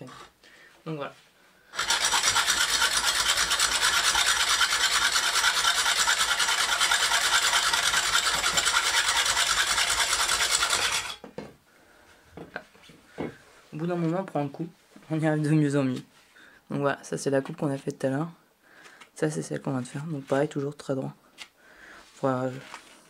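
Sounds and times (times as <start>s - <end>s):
hacksaw sawing bamboo: 0.0s - 0.3s, 1.7s - 11.2s.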